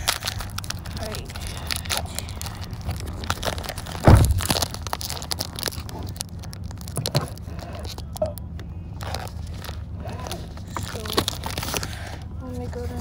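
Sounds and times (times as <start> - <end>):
wrapper crinkling and tearing: 0.0 - 12.2
low car rumble: 0.0 - 13.0.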